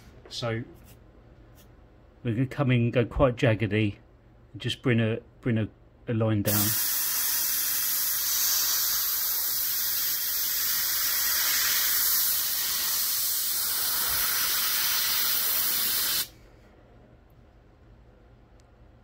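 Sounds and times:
airbrush hissing: 0:06.5 - 0:16.4.

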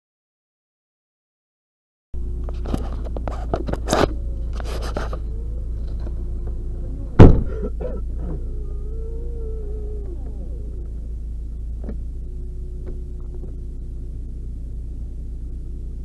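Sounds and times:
car engine idling: 0:02.2 - 0:16.0
loud thunk: 0:07.2 - 0:08.4.

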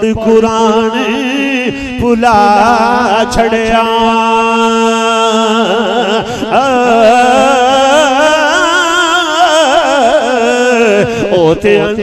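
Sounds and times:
man singing devotional verse: 0:00.0 - 0:12.0.

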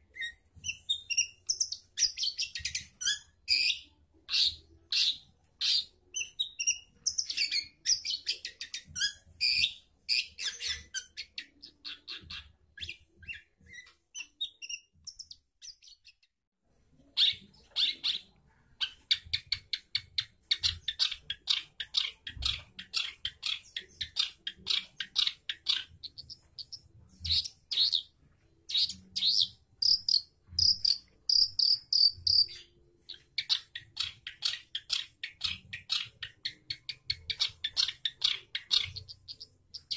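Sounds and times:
shrike chattering song: 0:28.7 - 0:39.9.

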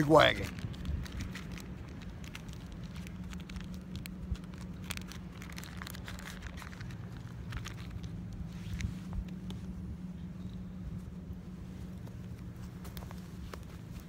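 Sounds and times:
paper crinkling and clicks: 0:00.0 - 0:09.6
steady low hum: 0:00.0 - 0:14.0.

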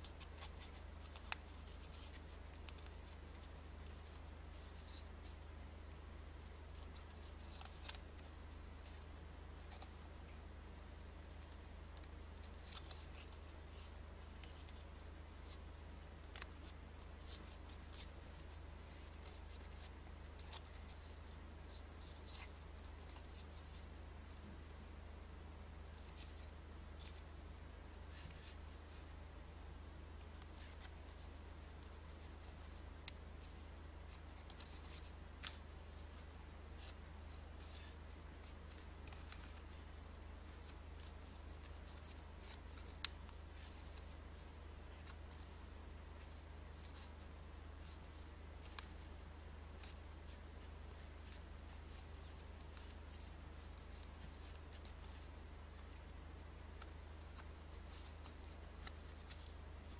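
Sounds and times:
sharp paper ticks: 0:00.0 - 0:05.4, 0:49.7 - 0:59.9
paper banknote rustling: 0:00.0 - 0:05.5, 0:33.4 - 0:39.8, 0:49.7 - 0:59.9
low steady hum: 0:00.0 - 0:59.9.

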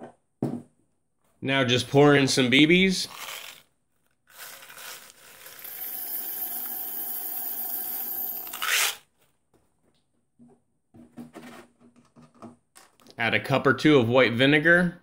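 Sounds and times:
metal pellets pouring into metal tube: 0:03.0 - 0:03.6, 0:04.3 - 0:09.0.

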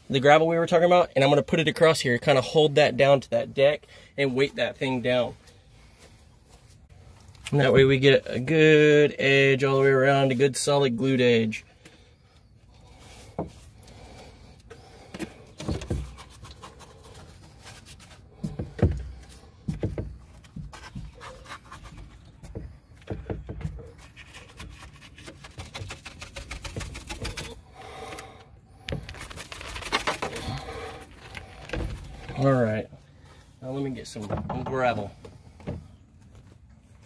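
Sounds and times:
brush scraping in plastic cup: 0:15.0 - 0:18.3
dull handling thumps: 0:18.3 - 0:21.2, 0:22.0 - 0:24.0.

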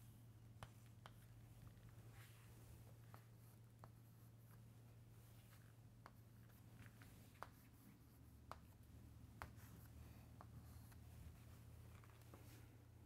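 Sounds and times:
chalk tapping on chalkboard: 0:07.3 - 0:07.8, 0:08.4 - 0:10.9.

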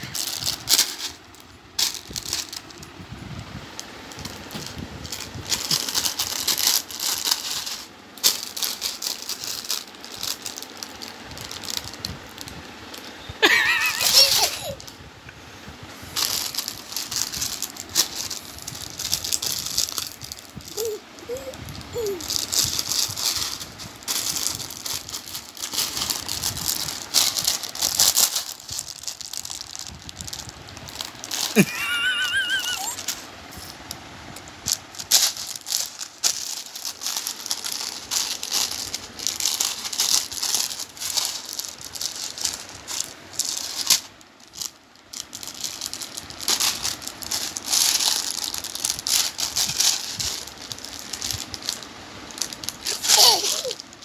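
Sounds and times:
plastic snack packet crinkling: 0:00.0 - 0:02.9, 0:03.8 - 0:14.9, 0:16.2 - 0:33.7, 0:34.4 - 0:54.0
baby squealing: 0:13.9 - 0:14.8, 0:20.6 - 0:22.6, 0:32.2 - 0:33.1, 0:52.8 - 0:53.8
baby babbling: 0:20.6 - 0:22.6, 0:32.6 - 0:33.0, 0:52.8 - 0:53.8.

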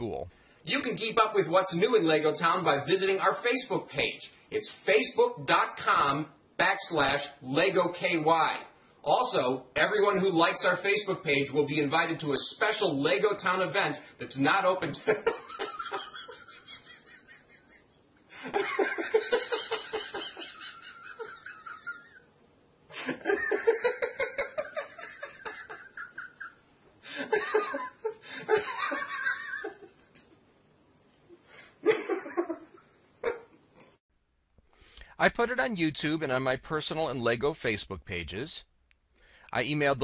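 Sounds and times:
man laughing hard: 0:15.1 - 0:22.2, 0:22.9 - 0:29.9.

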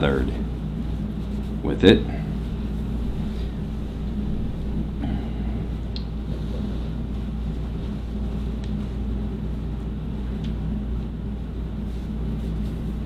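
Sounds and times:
steady low hum: 0:00.0 - 0:13.0
paper towel rubbing on blade: 0:00.6 - 0:04.8.

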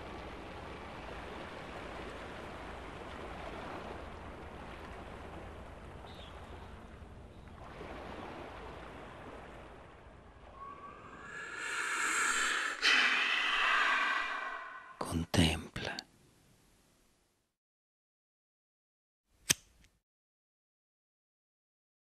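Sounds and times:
sea waves washing on shore: 0:00.0 - 0:15.0.

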